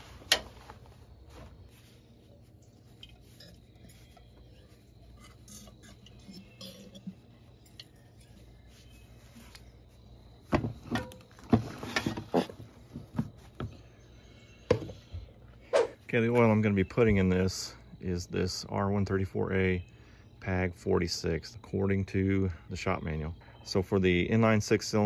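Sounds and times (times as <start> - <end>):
faint handling sounds: 0.0 - 17.2
knocks and clunks: 10.5 - 13.8.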